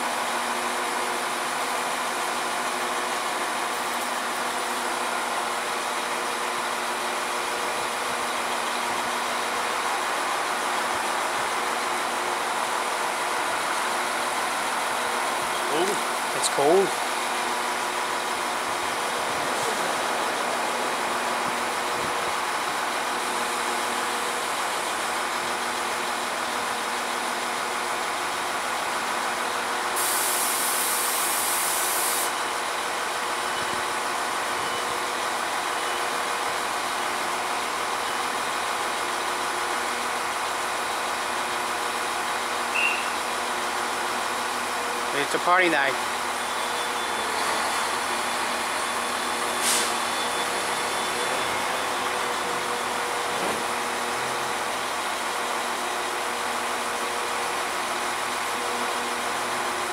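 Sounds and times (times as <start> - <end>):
diesel train idling: 0.0 - 59.9
loud hiss: 29.9 - 32.4, 47.5 - 52.0.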